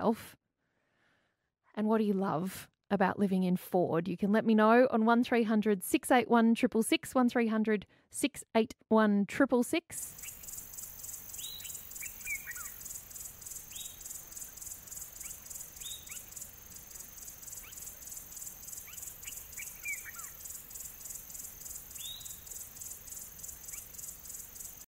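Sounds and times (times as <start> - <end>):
bird giving falling calls: 10.1 - 24.4
pulsing insect chorus: 10.1 - 24.9.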